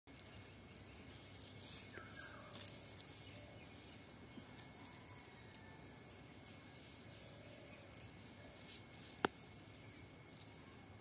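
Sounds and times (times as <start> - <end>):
net rustling: 0.1 - 3.6.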